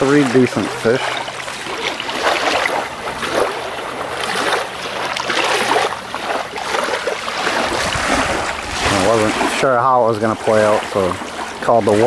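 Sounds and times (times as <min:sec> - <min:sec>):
water lapping on pebbly shore: 0:00.0 - 0:12.0.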